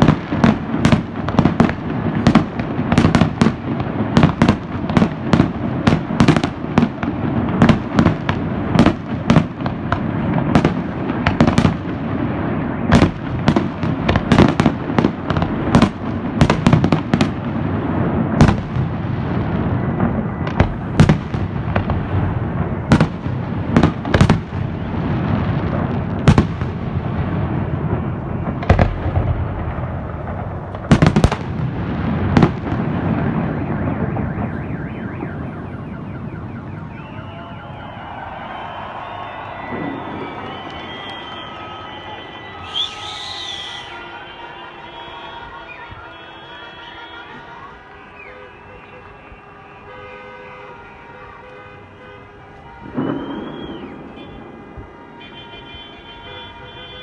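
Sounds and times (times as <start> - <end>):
low rumble of explosions: 0.0 - 42.6, 52.7 - 55.3
fireworks bangs: 0.0 - 57.0.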